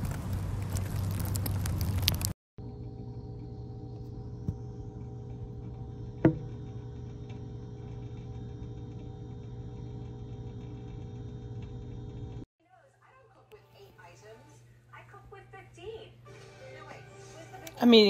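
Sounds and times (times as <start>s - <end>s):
electrical hum: 0.0s - 12.5s.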